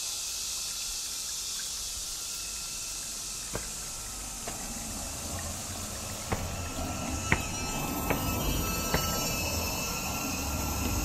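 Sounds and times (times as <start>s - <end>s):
spring water trickling over rock: 0.0s - 6.3s.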